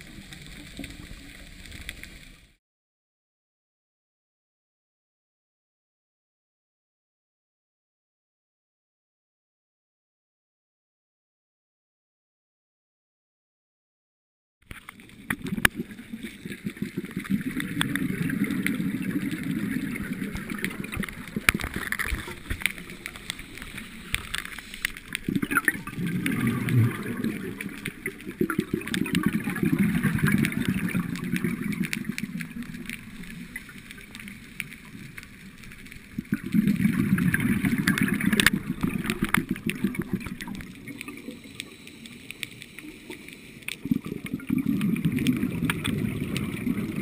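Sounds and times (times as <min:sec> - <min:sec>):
underwater bubbles gurgling: 0:00.0 - 0:02.6, 0:14.7 - 0:47.0.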